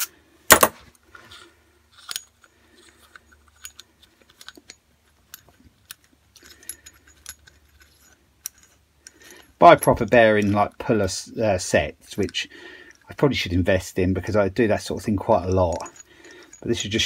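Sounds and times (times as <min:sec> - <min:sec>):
metallic clicks and clinks: 0:01.3 - 0:11.1, 0:14.8 - 0:17.0.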